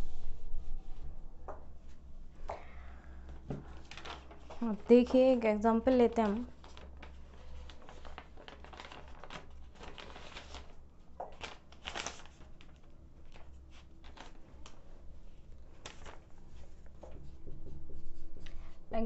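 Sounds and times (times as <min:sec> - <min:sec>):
low steady hum: 0:00.0 - 0:19.0
paper rustling and crinkling: 0:03.4 - 0:17.2.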